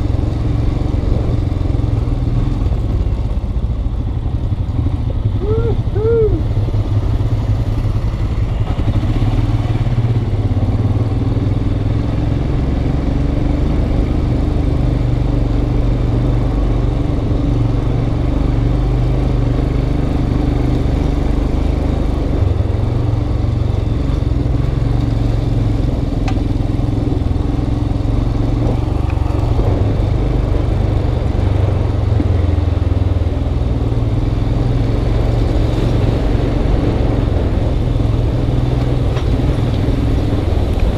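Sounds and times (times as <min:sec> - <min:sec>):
motorcycle engine at low revs: 0:00.0 - 0:40.9.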